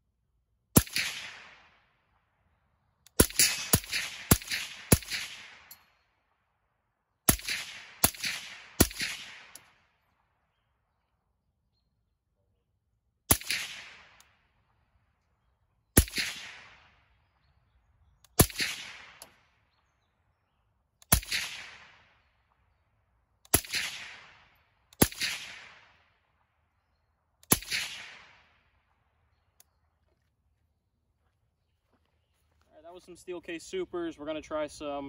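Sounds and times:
suppressed rifle shots: 0:00.8 - 0:01.9, 0:03.1 - 0:06.0, 0:07.3 - 0:10.0, 0:13.3 - 0:14.4, 0:16.0 - 0:17.2, 0:18.2 - 0:19.6, 0:21.0 - 0:22.3, 0:23.4 - 0:26.2, 0:27.4 - 0:28.9.

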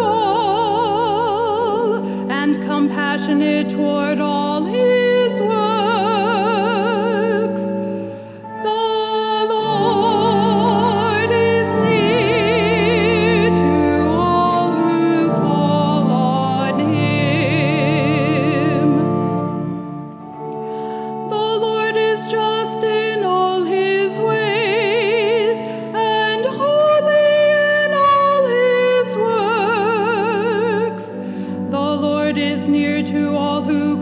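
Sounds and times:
solo singer with vibrato: 0:00.0 - 0:07.8, 0:08.4 - 0:19.5, 0:21.2 - 0:34.0
held accompaniment chords: 0:00.0 - 0:34.0.

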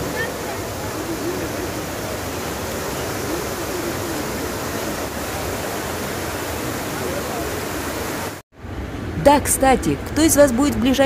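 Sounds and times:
faint voices: 0:00.0 - 0:07.9
fountain water rushing: 0:00.0 - 0:11.0.

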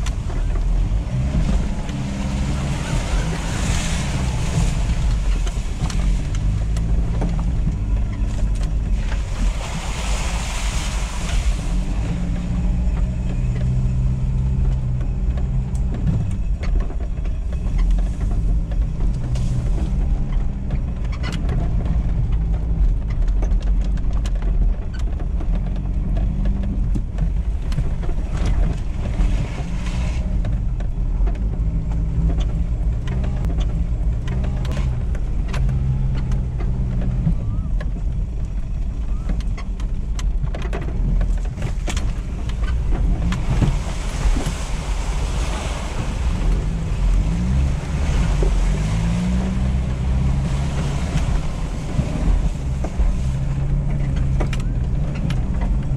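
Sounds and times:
diesel engine pulling at low speed: 0:00.0 - 0:55.9
tyres hissing through wet mud: 0:00.3 - 0:06.8, 0:09.0 - 0:12.8, 0:42.7 - 0:54.2
knocks and clicks: 0:30.2 - 0:44.6, 0:46.3 - 0:55.9.

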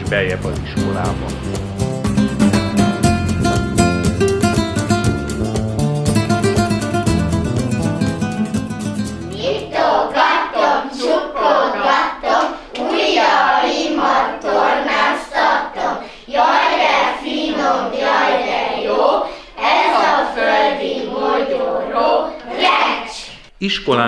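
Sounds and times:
acoustic guitar music: 0:00.0 - 0:10.1
children singing in unison: 0:09.4 - 0:23.4.

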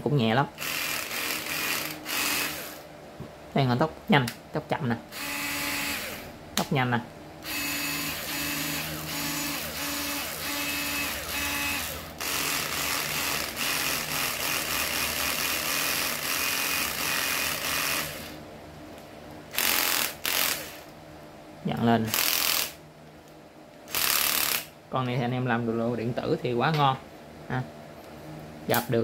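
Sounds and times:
cordless screwdriver whirring: 0:00.6 - 0:02.8, 0:05.1 - 0:06.3, 0:07.4 - 0:18.4, 0:19.5 - 0:20.9, 0:23.9 - 0:24.7.

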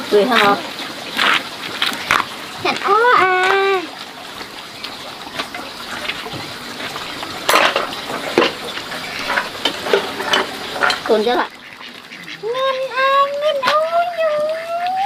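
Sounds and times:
dishes and utensils clinking: 0:05.3 - 0:11.3.

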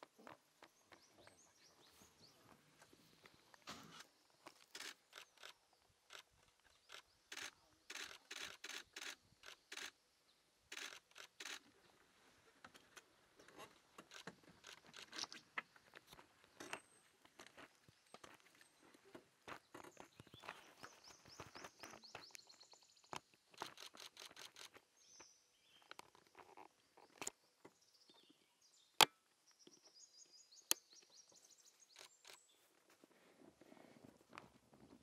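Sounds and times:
sharp loud clicks: 0:06.9 - 0:10.0, 0:10.7 - 0:11.7.

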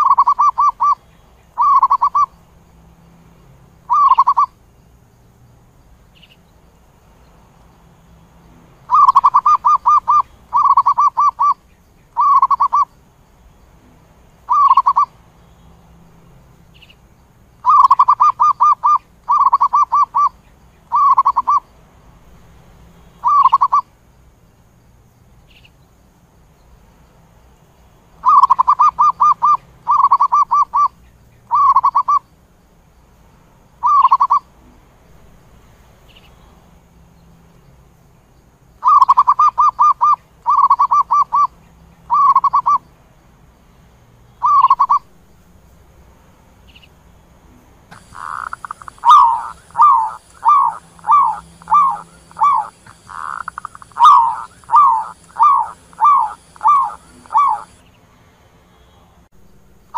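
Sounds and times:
dove trilled cooing: 0:00.0 - 0:01.0, 0:01.6 - 0:02.3, 0:03.9 - 0:04.6, 0:08.9 - 0:11.6, 0:12.2 - 0:12.9, 0:14.5 - 0:15.1, 0:17.6 - 0:21.6, 0:23.2 - 0:23.9, 0:28.2 - 0:32.2, 0:33.8 - 0:34.5, 0:38.8 - 0:41.5, 0:42.1 - 0:42.8, 0:44.4 - 0:45.1, 0:47.9 - 0:57.8.

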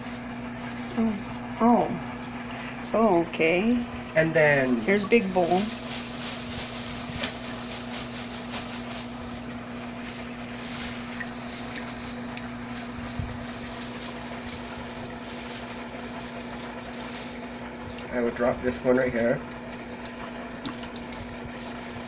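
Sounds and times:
steady mechanical hum: 0:00.0 - 0:22.0.

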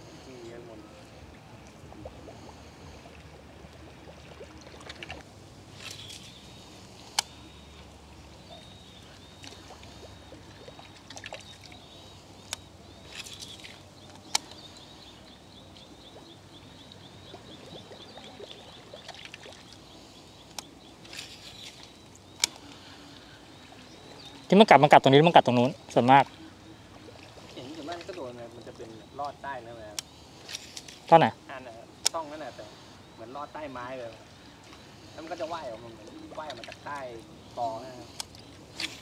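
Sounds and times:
faint water lapping: 0:00.0 - 0:39.0
faint high chirp: 0:05.8 - 0:30.3
sharp clicks: 0:12.4 - 0:14.6, 0:21.6 - 0:22.8.

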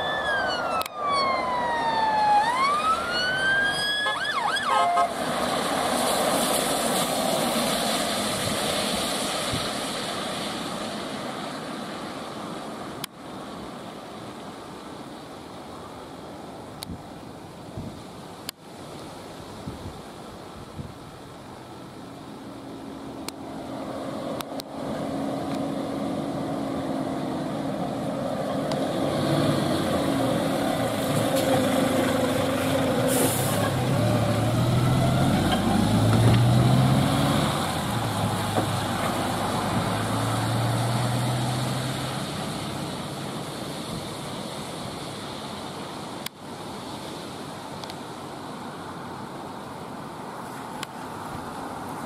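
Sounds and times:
diesel engine driving past: 0:23.6 - 0:43.2
air brakes hiss: 0:33.0 - 0:33.7.

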